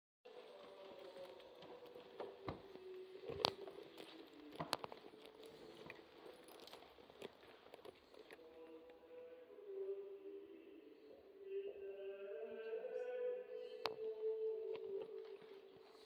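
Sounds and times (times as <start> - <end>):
faint footsteps: 0.3 - 8.4.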